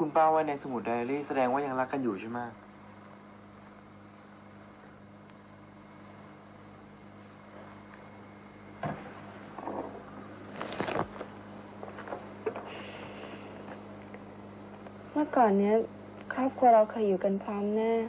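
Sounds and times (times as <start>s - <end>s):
crickets chirping: 0.0s - 18.0s
low steady hum: 0.0s - 18.0s
rustling: 8.8s - 13.9s.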